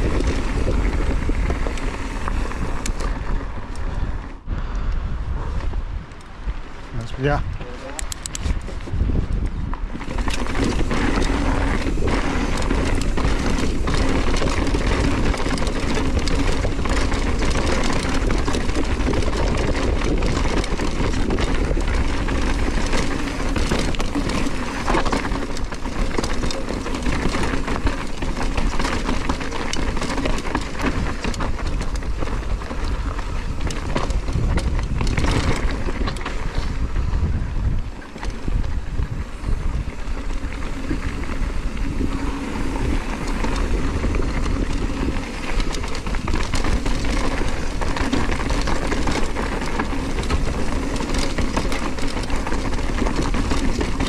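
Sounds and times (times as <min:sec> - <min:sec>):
tyres crunching over gravel: 0:00.0 - 0:03.9, 0:09.9 - 0:37.0, 0:37.9 - 0:54.0
bike rattling and clicking: 0:00.0 - 0:04.4, 0:05.5 - 0:54.0
wind on microphone: 0:00.0 - 0:54.0.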